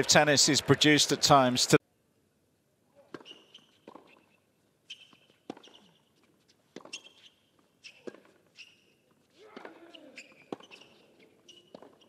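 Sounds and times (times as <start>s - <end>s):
racket strokes and ball bounces: 3.0s - 12.0s
shoe squeaks: 3.1s - 12.0s.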